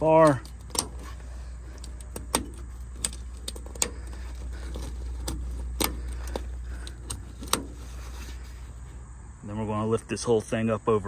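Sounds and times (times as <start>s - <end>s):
low steady hum: 0.0s - 11.0s
snap fasteners clicking shut: 0.2s - 7.9s.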